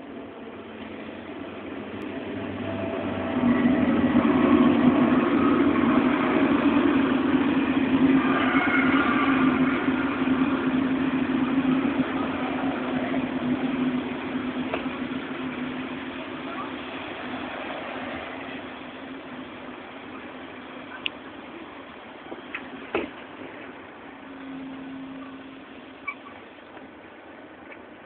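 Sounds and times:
train rumbling on rails: 0.0s - 28.0s
faint high squeals: 8.0s - 10.9s, 24.2s - 26.6s.

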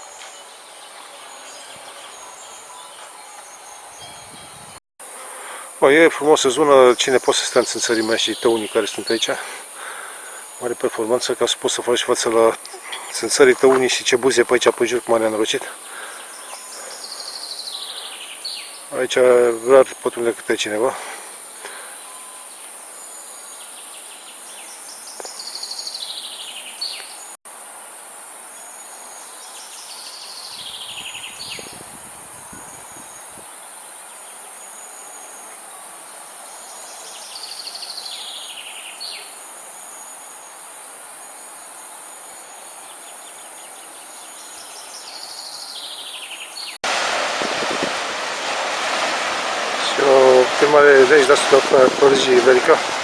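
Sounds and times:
insect chorus: 0.0s - 53.0s
songbird trilling: 15.8s - 18.9s, 24.6s - 27.3s
rushing noise: 46.8s - 53.0s.

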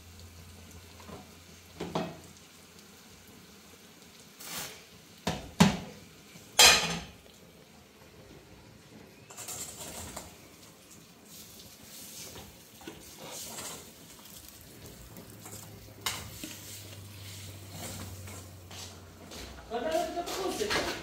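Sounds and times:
utensil scraping in a pot: 4.4s - 4.9s, 9.2s - 21.0s.

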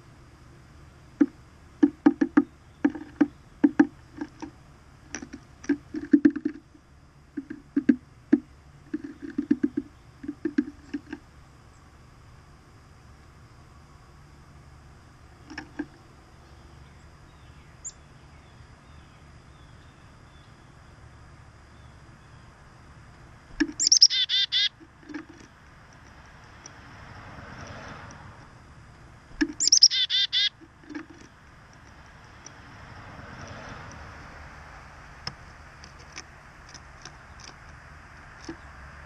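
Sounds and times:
chickadee call: 23.6s - 25.5s, 29.4s - 31.2s.

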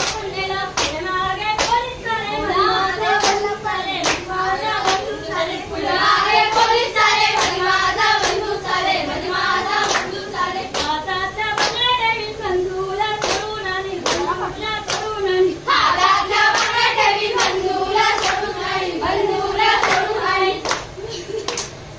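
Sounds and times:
sharp handclaps: 0.0s - 1.0s, 1.6s - 1.9s, 3.2s - 5.1s, 7.3s - 7.6s, 8.2s - 8.4s, 9.8s - 11.0s, 11.6s - 11.9s, 13.2s - 15.1s, 16.5s - 18.5s, 19.8s - 21.8s
women singing in unison: 0.0s - 21.0s.

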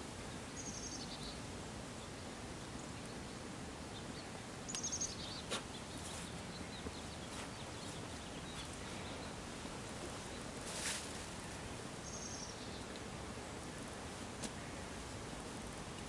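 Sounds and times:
outdoor background noise: 0.0s - 16.0s
bird chirping: 0.3s - 9.5s, 11.4s - 13.0s.

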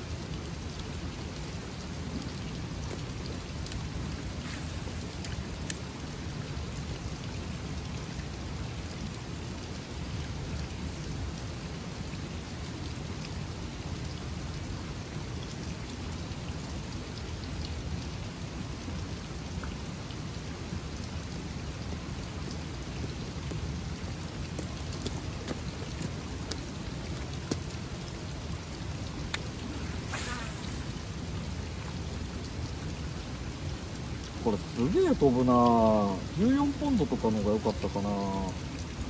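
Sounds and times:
river water rushing: 19.6s - 39.0s.

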